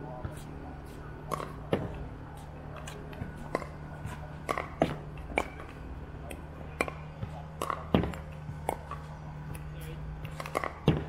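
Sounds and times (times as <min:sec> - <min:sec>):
paddle hitting ball pops: 0:04.4 - 0:05.8, 0:10.3 - 0:11.0.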